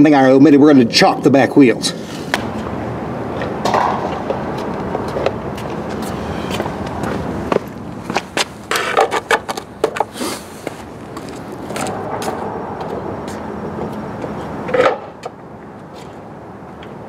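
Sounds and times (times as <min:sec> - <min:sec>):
footsteps: 0:03.4 - 0:14.8.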